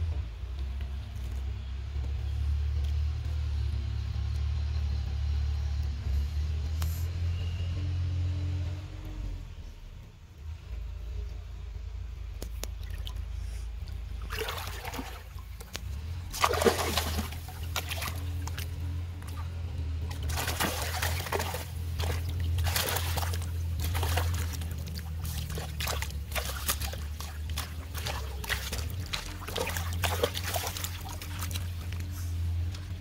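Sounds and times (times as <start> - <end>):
steady low hum: 0.0 - 33.0
water splashing and sloshing: 11.8 - 33.0.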